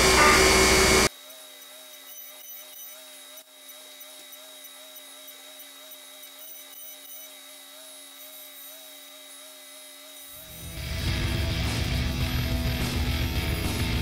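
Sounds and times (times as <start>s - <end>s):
high steady tone: 0.0s - 1.1s
milling machine spindle hum: 0.0s - 14.0s.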